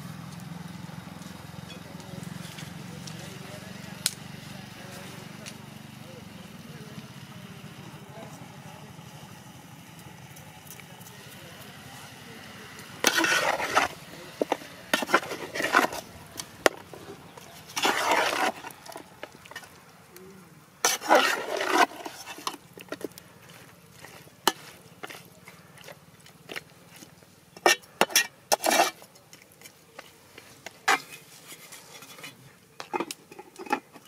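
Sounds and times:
metal spatula scraping a pot: 13.0 - 19.7, 20.8 - 34.0.

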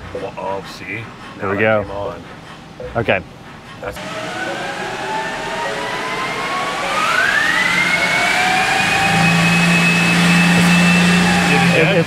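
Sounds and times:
dyno roller noise: 3.9 - 12.0
electric drive whine: 4.0 - 12.0.

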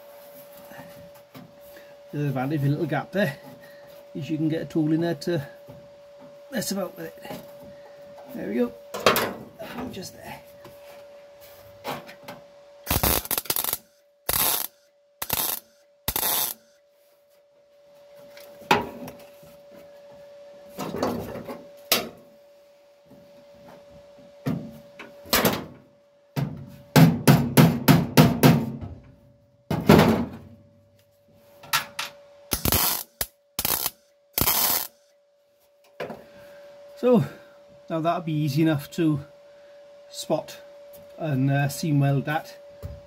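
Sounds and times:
welder arc bursts: 12.8 - 16.8, 32.5 - 35.1.

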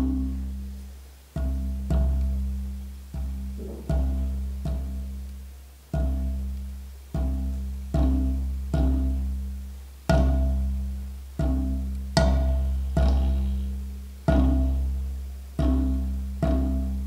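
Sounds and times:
xylophone deep note: 3.5 - 4.3, 12.2 - 13.7.

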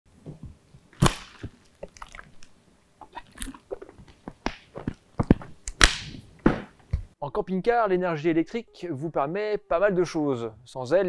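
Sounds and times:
plastic bottle crinkling: 0.8 - 6.3
loud snap: 5.7 - 6.7.

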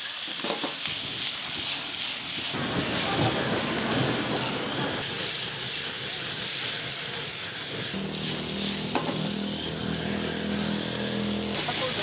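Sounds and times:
steak sizzling in frying pans: 0.0 - 3.1, 4.4 - 12.0
gas torch hissing: 0.0 - 12.0
steady low hum: 8.0 - 11.6.

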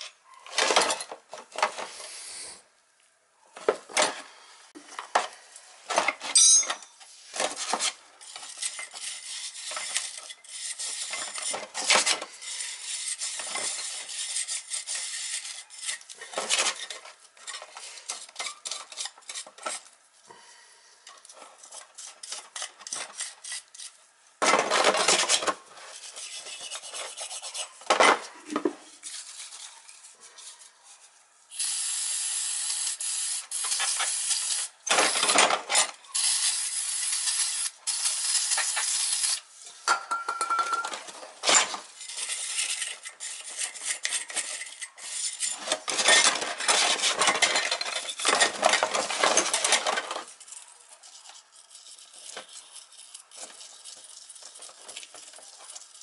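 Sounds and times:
steady hiss: 1.8 - 2.7
wire brush scrubbing metal parts: 24.7 - 31.2, 41.5 - 56.0.

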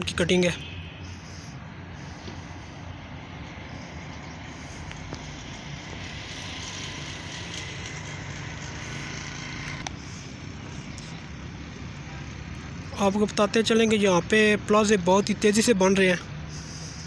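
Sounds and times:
distant road traffic: 0.0 - 17.0.

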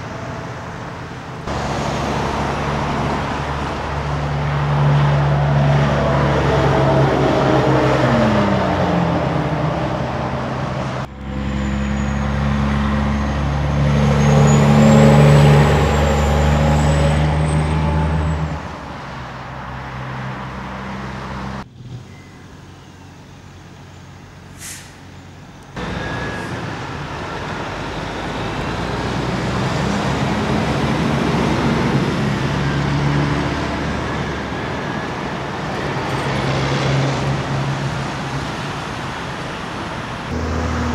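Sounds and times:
diesel trucks passing: 0.0 - 40.9
passing traffic: 0.0 - 40.9.

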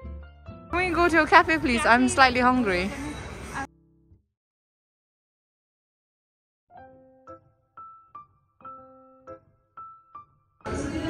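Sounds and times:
sparse keyboard melody: 6.7 - 11.0.

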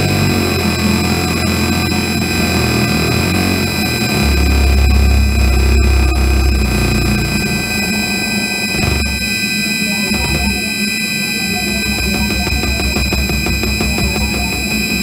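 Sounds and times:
low bass throb: 0.0 - 8.0, 8.8 - 9.3, 11.6 - 15.0
buzzing drone: 0.0 - 15.0
high whining tones: 0.0 - 15.0.

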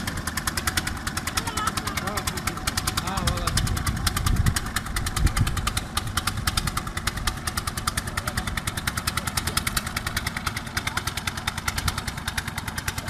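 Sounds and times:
small boat engine chugging: 0.0 - 13.0.

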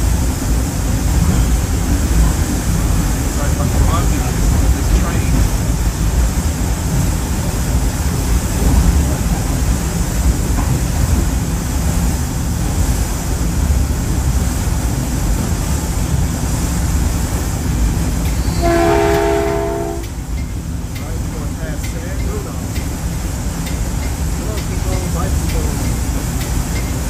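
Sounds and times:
train rumbling: 0.0 - 27.0
multi-tone train horn: 18.5 - 20.2.

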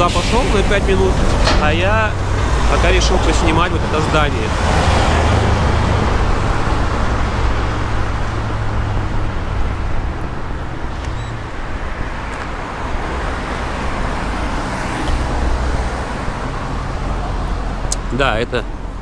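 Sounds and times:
street traffic rumble: 0.0 - 19.0.

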